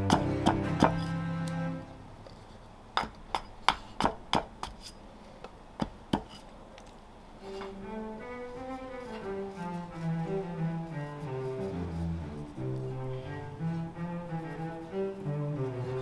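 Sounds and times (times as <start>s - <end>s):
axe chopping wood: 0.0s - 1.1s, 3.0s - 4.8s
solo cello music: 0.0s - 2.1s, 7.4s - 16.0s.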